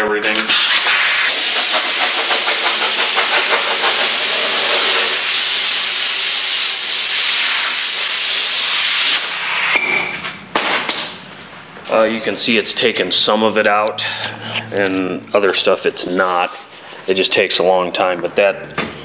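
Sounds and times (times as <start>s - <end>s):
compressed air blow gun hissing: 0.5s - 9.8s.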